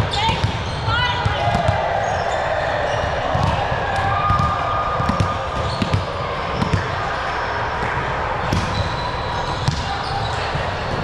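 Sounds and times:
ball bouncing thuds: 3.3 - 6.9, 8.5 - 8.8, 9.6 - 9.9.

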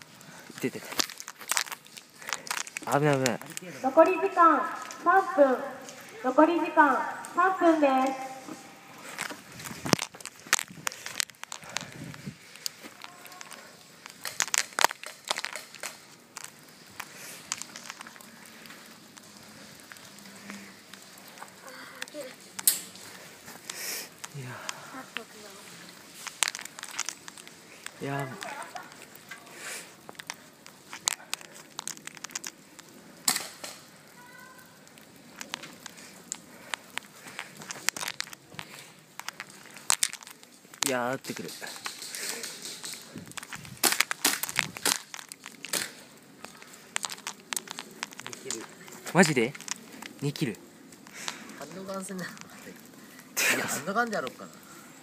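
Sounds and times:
pellets striking branches: 0.0 - 19.2, 22.2 - 34.3, 35.0 - 52.4
brush crackling: 0.0 - 55.0
sharp twig cracks: 0.6 - 3.6, 7.2 - 19.3, 19.9 - 23.0, 26.1 - 50.3
footsteps crunching through leaves: 0.6 - 15.9.

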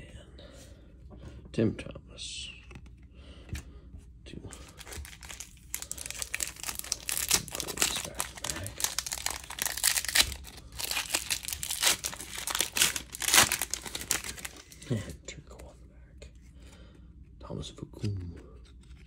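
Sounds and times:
foil wrapper crinkling and tearing: 4.7 - 15.0.

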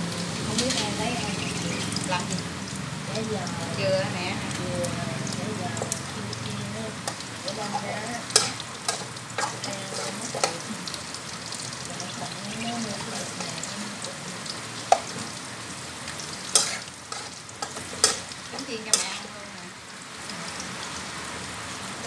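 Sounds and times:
food sizzling in oil: 0.0 - 22.0
metal spatula scraping wok: 0.4 - 2.2, 7.0 - 11.2, 12.2 - 14.2, 16.2 - 19.4.

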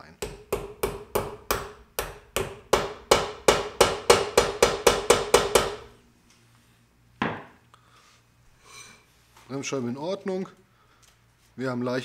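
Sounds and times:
hammer tapping metal: 0.2 - 5.9.

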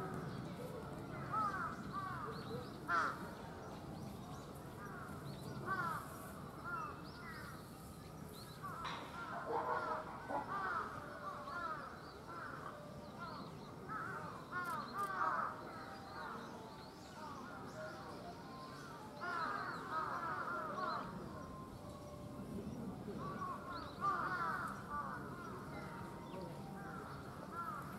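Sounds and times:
birds calling: 23.1 - 27.9.

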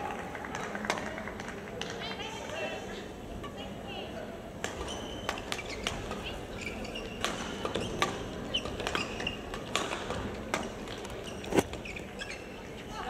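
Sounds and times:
hall background noise: 0.0 - 13.0
shoes squeaking on court floor: 4.7 - 13.0
rackets striking shuttlecock: 7.0 - 11.8.

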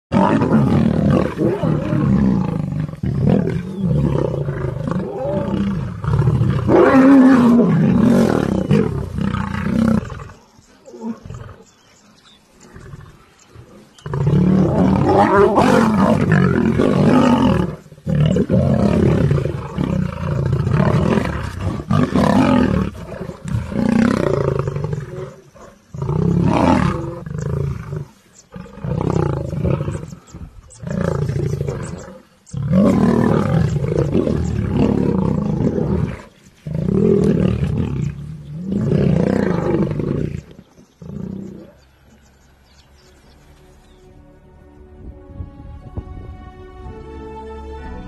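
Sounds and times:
lions roaring: 0.1 - 11.8, 12.6 - 41.8.

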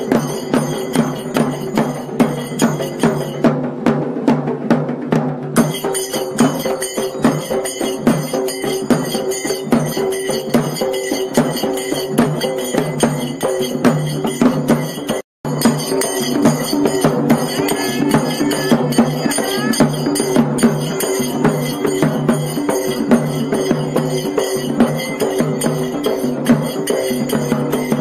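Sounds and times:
barrel drum beaten with sticks: 0.0 - 28.0.

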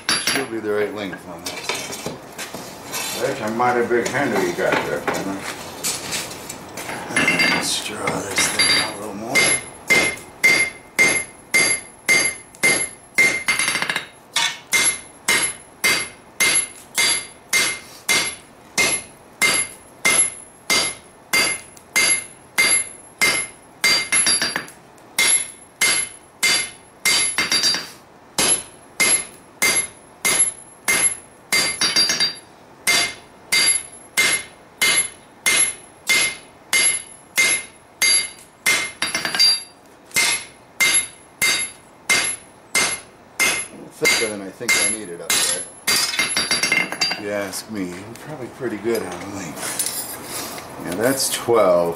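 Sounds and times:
hammer striking steel on anvil: 8.4 - 47.2.

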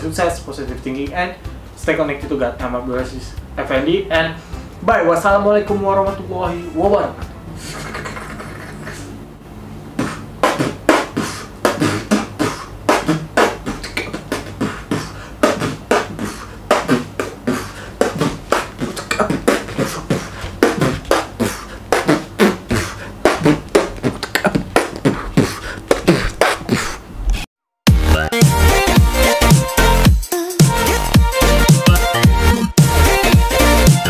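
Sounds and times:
man beatboxing: 7.5 - 9.2, 9.9 - 34.0.

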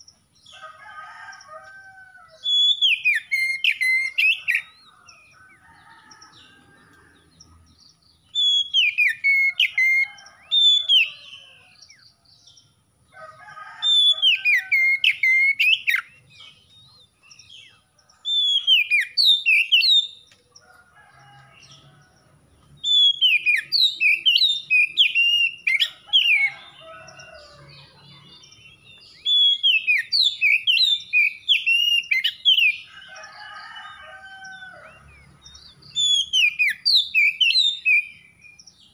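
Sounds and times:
bird singing whistled phrases: 2.4 - 4.7, 8.4 - 10.0, 22.8 - 25.6.

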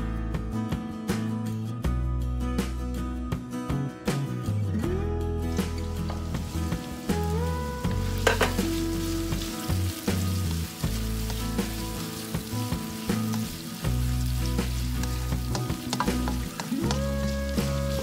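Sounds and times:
onion sizzling in hot oil: 5.4 - 18.0
spatula stirring and scraping: 8.2 - 18.0
spatula clicking against pan: 15.0 - 17.0.

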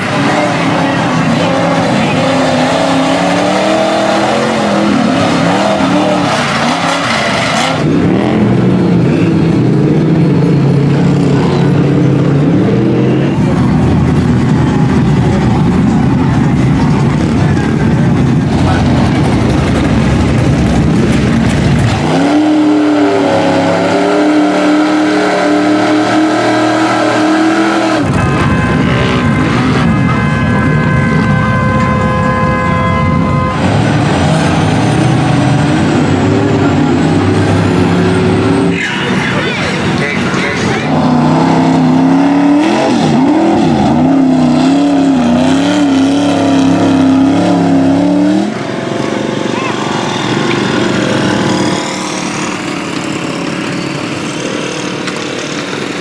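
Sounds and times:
truck engine revving: 0.0 - 56.0.

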